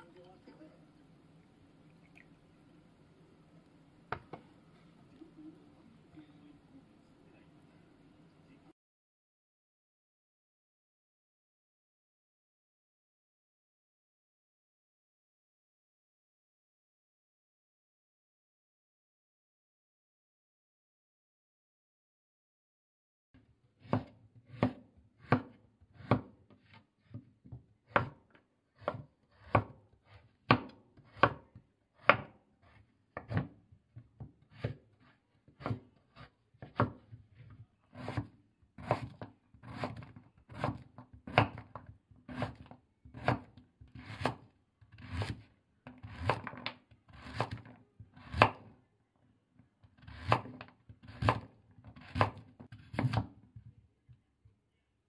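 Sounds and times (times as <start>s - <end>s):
knife slicing on wooden board: 28.8s - 31.4s, 34.5s - 37.0s, 37.9s - 41.7s, 42.3s - 45.4s.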